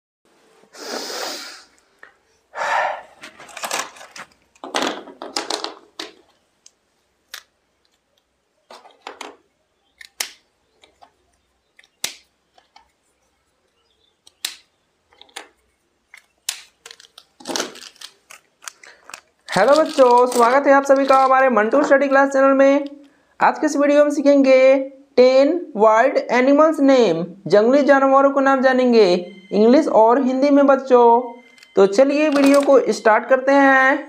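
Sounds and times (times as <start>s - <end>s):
handling rustling: 3.2s - 6.6s.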